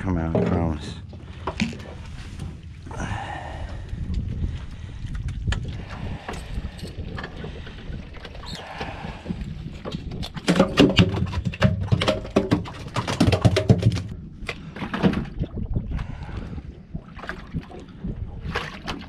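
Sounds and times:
wind and water hiss: 1.3s - 10.0s
fish flopping on metal deck: 8.3s - 15.4s.

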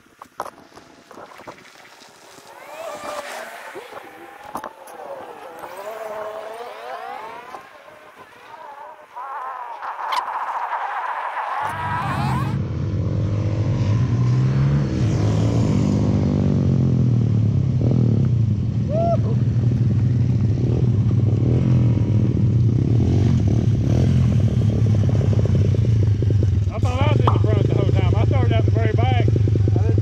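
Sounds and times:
small motorbike engines idling: 1.8s - 10.0s, 25.8s - 30.0s.

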